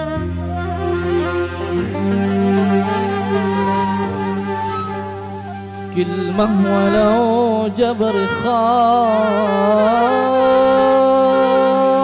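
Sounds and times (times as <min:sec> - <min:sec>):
oud and band playing: 0:00.0 - 0:10.7
man singing long note: 0:05.9 - 0:12.0.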